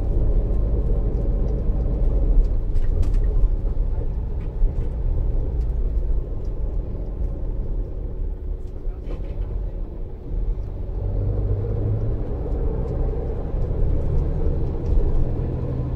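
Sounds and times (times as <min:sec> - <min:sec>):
bus engine and road rumble: 0:00.0 - 0:15.9.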